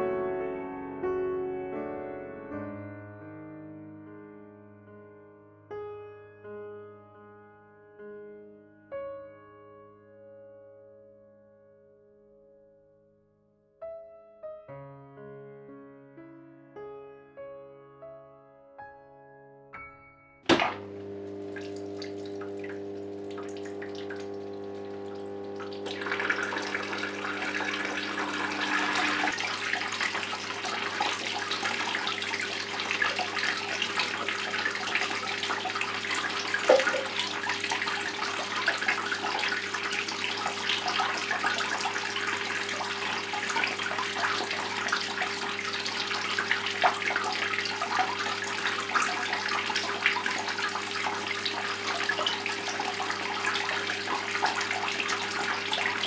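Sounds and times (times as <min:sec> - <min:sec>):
fountain water trickling: 0:21.3 - 0:56.0.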